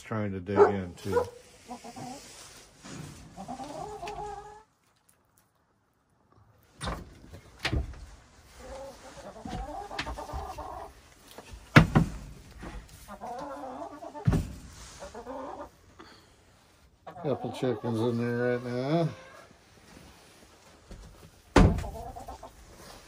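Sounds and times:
hens clucking: 0.5s - 4.8s, 8.4s - 20.0s, 21.0s - 23.0s
wooden coop door knocks: 11.8s - 12.2s, 21.5s - 21.9s.

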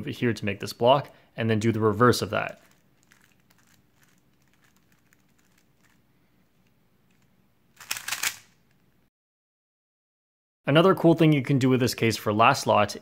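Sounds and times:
puzzle cube turning clicks: 7.1s - 8.6s.

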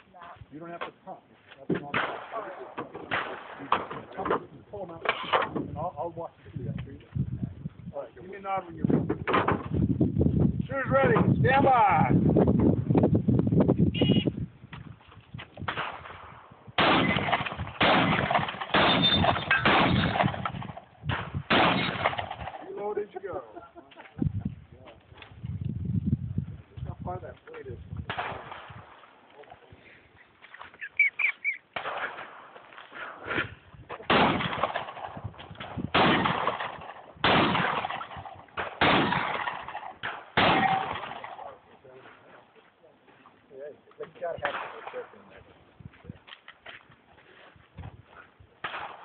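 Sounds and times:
shotgun shots echoing: 1.8s - 4.2s, 15.6s - 23.0s, 28.1s - 29.1s, 31.7s - 32.6s, 34.0s - 41.6s, 44.4s - 45.2s, 48.6s - 49.0s.

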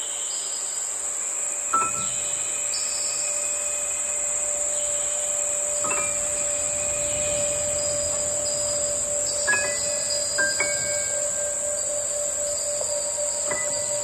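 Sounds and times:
chorus of insects: 0.0s - 14.0s
held low tone: 1.8s - 14.0s
short ringing notes: 3.2s - 14.0s.

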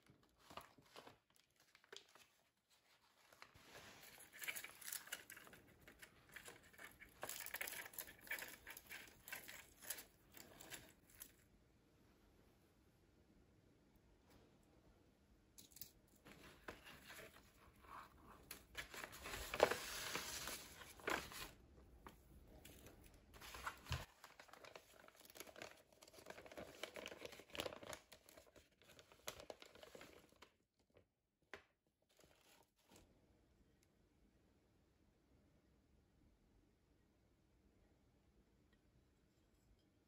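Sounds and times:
cloth and tissue paper rustling: 0.2s - 5.4s, 22.6s - 30.0s
parcel being unwrapped: 3.2s - 11.4s.

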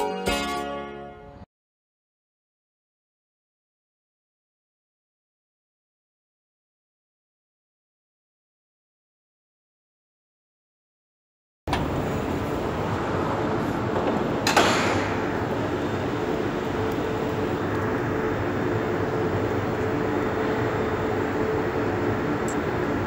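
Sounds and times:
metro train running rumble: 11.7s - 23.0s.

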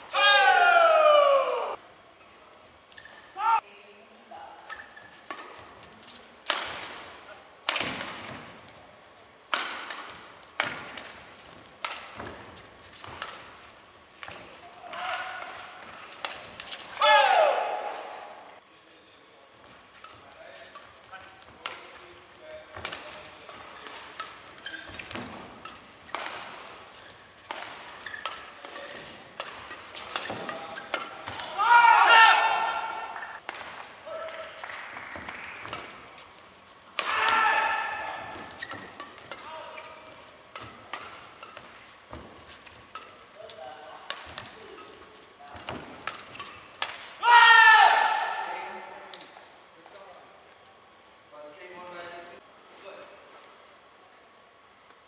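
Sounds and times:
rackets striking shuttlecock: 4.7s - 5.8s, 6.4s - 8.6s, 9.5s - 18.6s, 20.0s - 31.6s, 32.4s - 36.2s, 36.9s - 47.2s
shoes squeaking on court: 4.7s - 6.3s, 19.6s - 31.5s, 38.2s - 46.8s.

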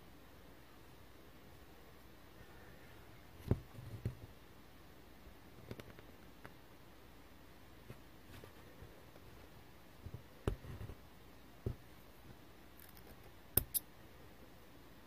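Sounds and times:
soft knocks of handling fabric: 3.4s - 4.3s, 11.6s - 11.9s
scissors snipping: 12.8s - 13.8s.

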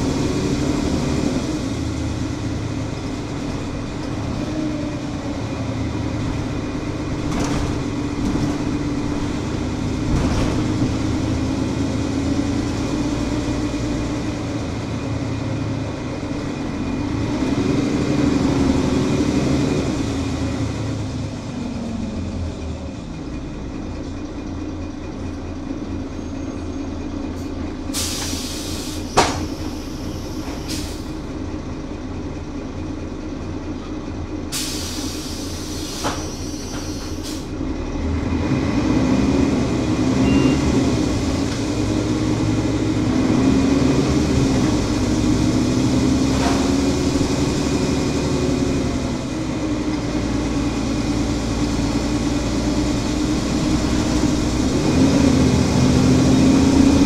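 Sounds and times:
diesel bus engine running: 0.0s - 57.0s
air brake hiss: 27.9s - 31.2s, 34.5s - 37.5s.

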